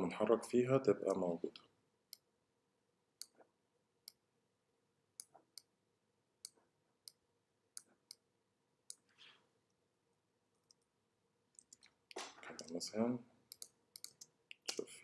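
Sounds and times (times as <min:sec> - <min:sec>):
computer mouse clicks: 0:05.2 - 0:05.7, 0:13.5 - 0:14.9.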